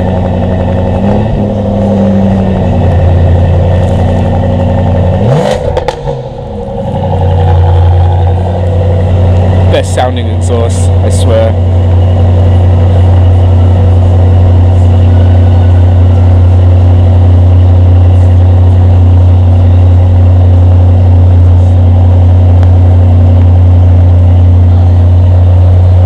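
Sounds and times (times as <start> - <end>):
car exhaust idling: 0.0 - 26.0.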